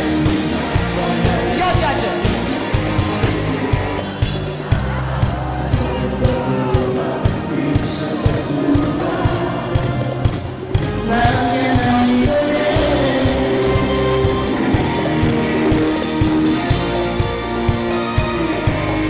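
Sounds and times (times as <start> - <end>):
live band playing pop-folk: 0.0 - 19.0
steady drum beat: 0.0 - 19.0
women singing: 5.8 - 16.0.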